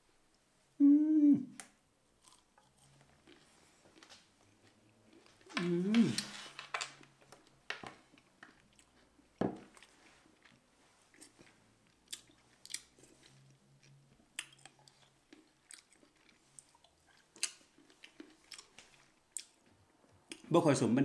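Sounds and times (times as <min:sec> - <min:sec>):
chewing crunchy berries: 0:02.2 - 0:06.3, 0:08.1 - 0:20.5.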